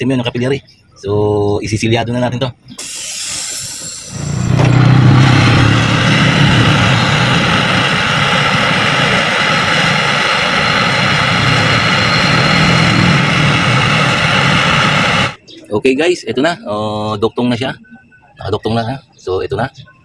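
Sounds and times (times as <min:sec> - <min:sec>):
torch flame hissing: 0:02.8 - 0:15.4.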